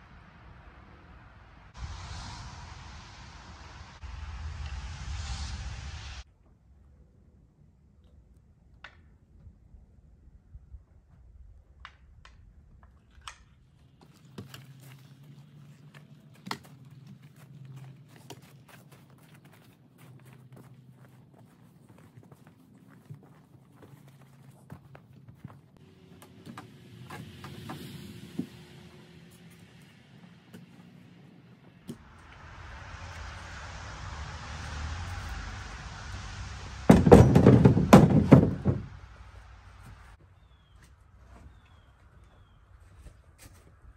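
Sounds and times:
logs dropped into wheelbarrow: 0:36.9 - 0:39.0
sharp knock: 0:36.9 - 0:39.0.

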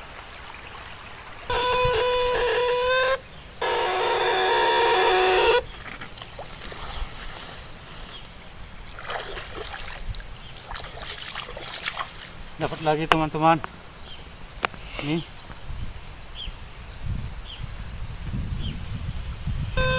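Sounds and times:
electric shocker buzzing: 0:01.5 - 0:05.7
splashes in mud: 0:05.7 - 0:07.7, 0:08.9 - 0:12.3.

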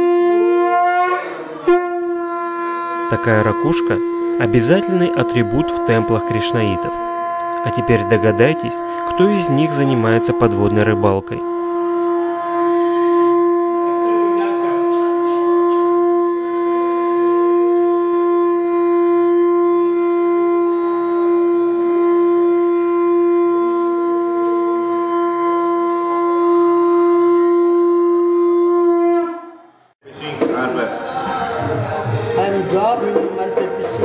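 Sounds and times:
conch shell blown: 0:00.0 - 0:30.0, 0:31.4 - 0:34.0.

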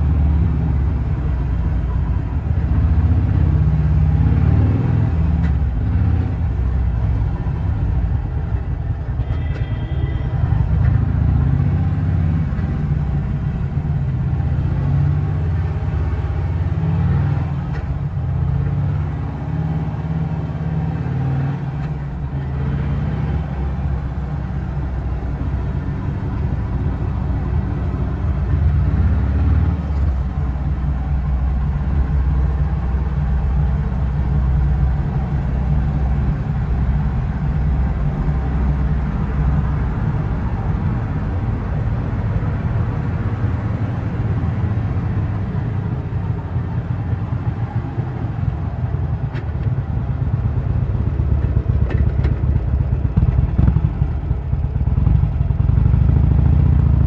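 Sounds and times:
motorcycle engine running: 0:23.4 - 0:57.0.

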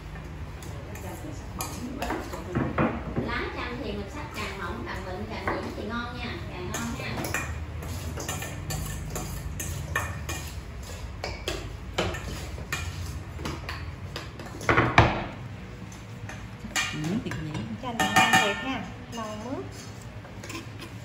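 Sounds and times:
steel bowls and plates clinking: 0:06.6 - 0:14.7, 0:15.9 - 0:21.0.

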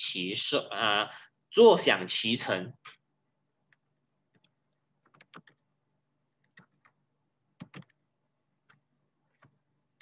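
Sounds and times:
computer keyboard typing: 0:04.3 - 0:05.6, 0:06.4 - 0:07.0, 0:07.6 - 0:08.0.

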